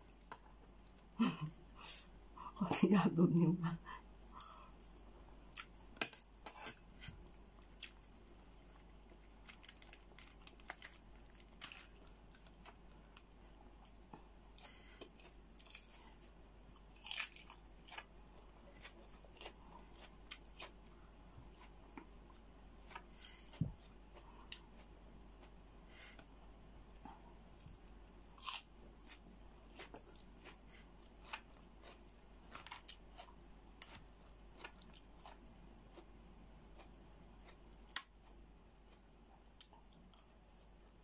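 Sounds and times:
person chewing: 7.2s - 26.3s, 26.9s - 36.1s, 36.7s - 41.0s
small crunches: 7.6s - 18.1s.

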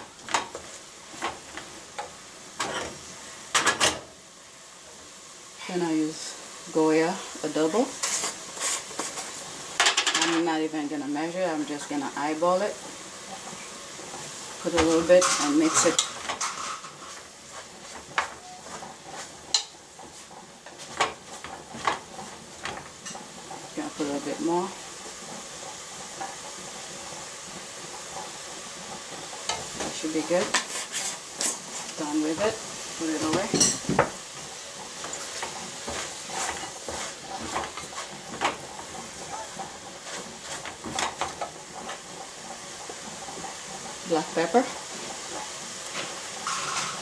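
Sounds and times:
meat sizzling: 0.0s - 47.0s
wooden spoon scraping pot: 12.3s - 26.8s, 29.0s - 42.0s.

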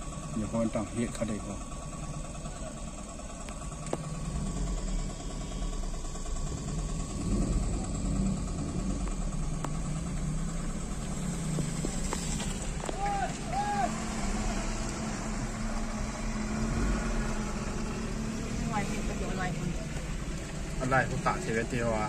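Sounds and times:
car engines idling: 0.0s - 22.0s.

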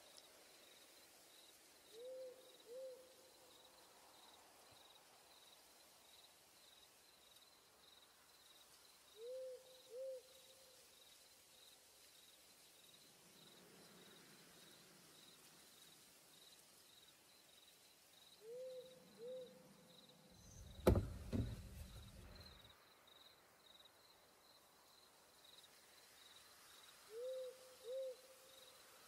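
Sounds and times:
insect chirp pulsing: 0.0s - 29.0s
soft pitched hoots: 1.9s - 3.2s, 9.2s - 10.3s, 18.4s - 19.8s, 27.1s - 28.3s
camera handling knock and rumble: 20.6s - 22.4s.

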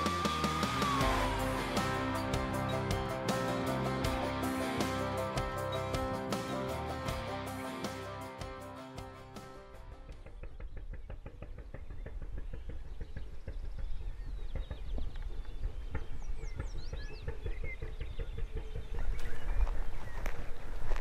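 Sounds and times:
small bird chirping: 11.8s - 20.7s.

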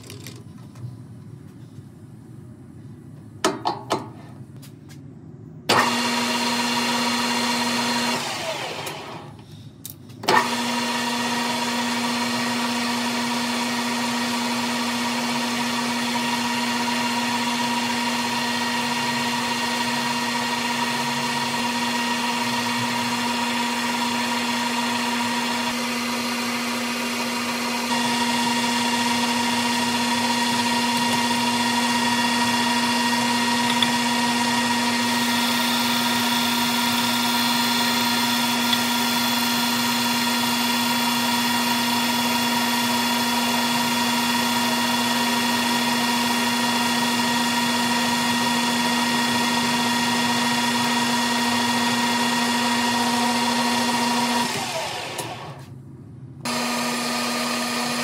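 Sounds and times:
metal lathe whining: 10.3s - 55.7s.

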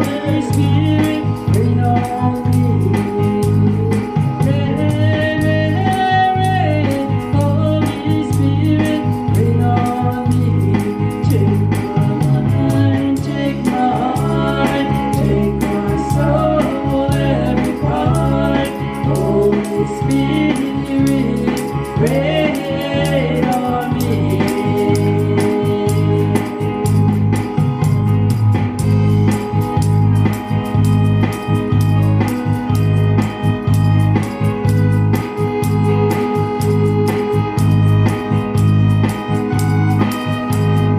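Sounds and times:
woman singing into a microphone: 0.0s - 26.9s
instrumental accompaniment with beat: 0.0s - 40.9s.

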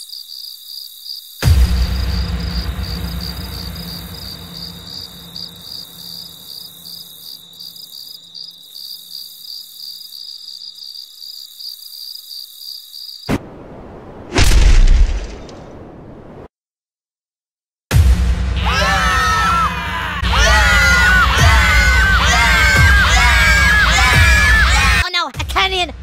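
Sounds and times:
crickets chirping: 0.0s - 14.0s
loud hit: 1.4s - 6.5s
deep rumble: 1.6s - 6.5s.

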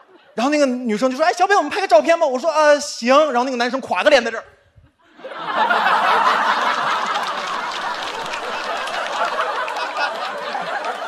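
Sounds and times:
audience laughing: 5.0s - 11.0s.

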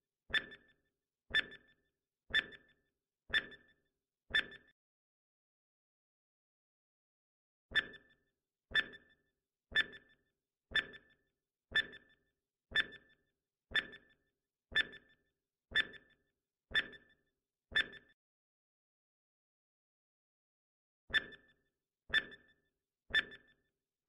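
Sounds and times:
countdown timer ticks: 0.3s - 0.7s, 9.7s - 11.2s, 12.7s - 15.1s.

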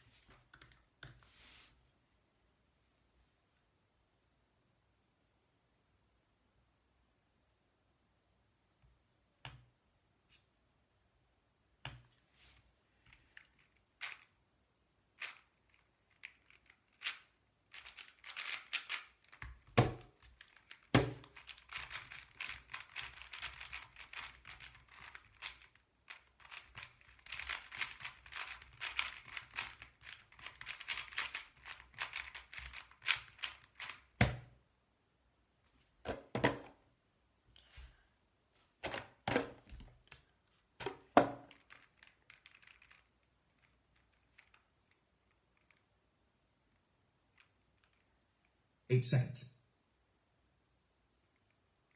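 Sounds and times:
speedcube clicking: 13.0s - 14.4s, 15.2s - 34.5s, 41.4s - 45.9s
cube knocks: 18.8s - 21.4s.

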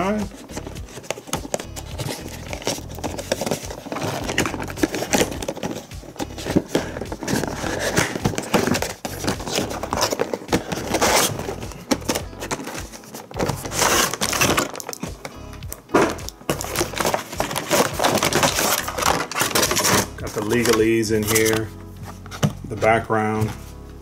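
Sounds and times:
plastic tray crinkling: 0.1s - 22.6s
cardboard box scraping and tapping: 0.1s - 23.8s.

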